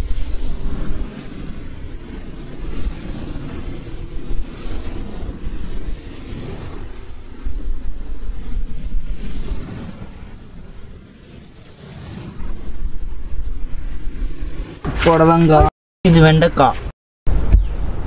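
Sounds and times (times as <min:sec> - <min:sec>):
surf breaking on beach: 0:00.0 - 0:16.3
wind buffeting microphone: 0:00.0 - 0:18.0.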